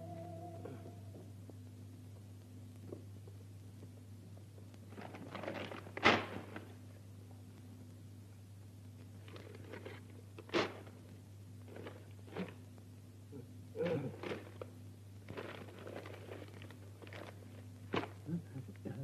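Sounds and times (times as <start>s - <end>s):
steady low hum: 0.0s - 19.0s
paper crumpling and ripping: 4.9s - 6.7s, 9.2s - 11.0s, 11.7s - 12.6s, 14.2s - 18.2s
sharp crack: 5.8s - 6.8s.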